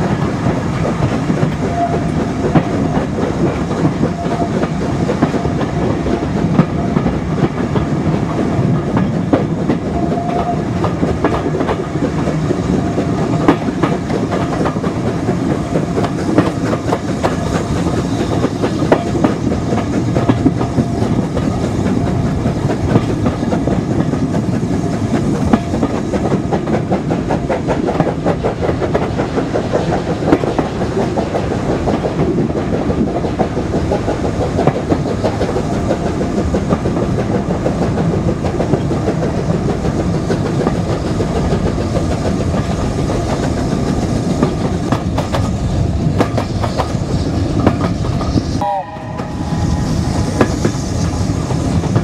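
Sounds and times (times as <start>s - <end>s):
train coaches rumbling: 0.0s - 52.0s.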